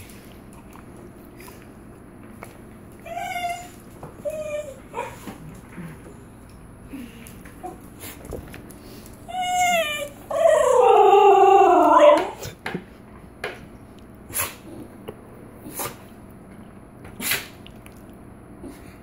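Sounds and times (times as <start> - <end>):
dog yodelling: 9.3 - 12.5.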